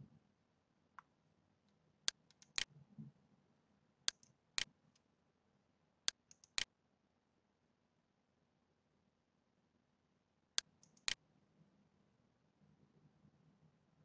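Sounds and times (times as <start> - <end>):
computer mouse clicking: 2.1 - 2.7, 4.1 - 4.4, 6.1 - 6.7, 10.6 - 11.2.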